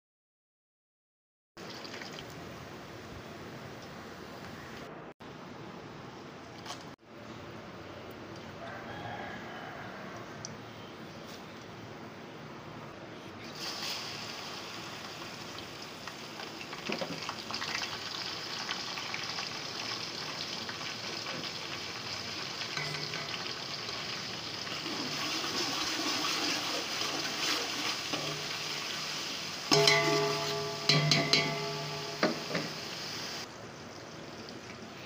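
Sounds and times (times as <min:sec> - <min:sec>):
onions sizzling in hot oil: 0:13.4 - 0:35.0.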